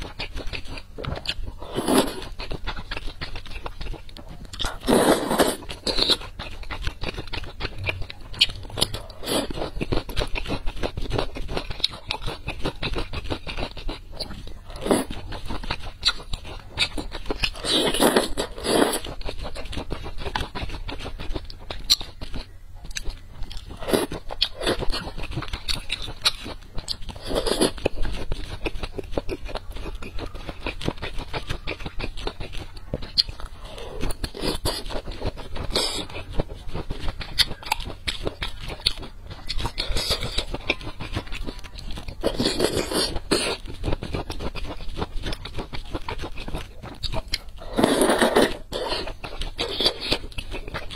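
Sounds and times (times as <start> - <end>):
chewing and crunching food: 0.0 - 50.9.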